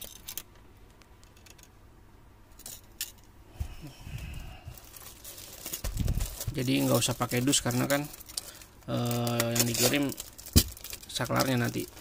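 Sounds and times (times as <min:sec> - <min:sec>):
plastic mailer rustling: 0:04.7 - 0:12.0.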